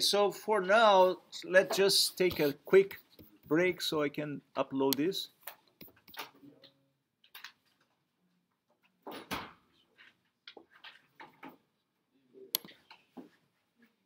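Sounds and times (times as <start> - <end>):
small knocks and rustling: 8.7 - 11.7.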